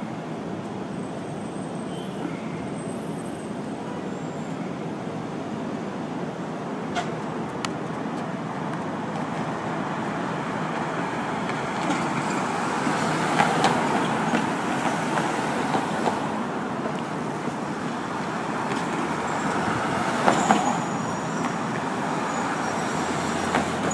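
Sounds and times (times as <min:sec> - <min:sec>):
passing vehicles: 0:00.0 - 0:23.9
high brake squeal: 0:00.9 - 0:04.8, 0:19.2 - 0:23.9.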